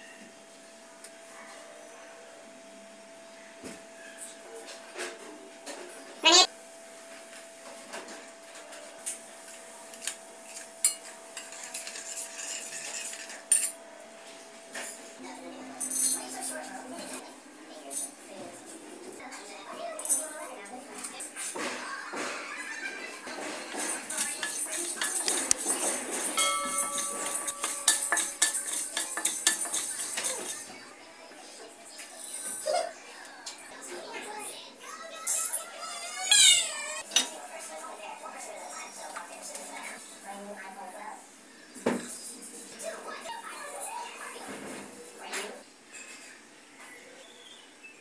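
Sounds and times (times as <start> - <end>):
spoons clinking on metal bowl: 10.0 - 13.8, 23.7 - 30.7
spoon stirring liquid: 23.7 - 30.7
spatula scraping spices in pan: 23.8 - 30.6
metal pan ringing: 26.2 - 30.3.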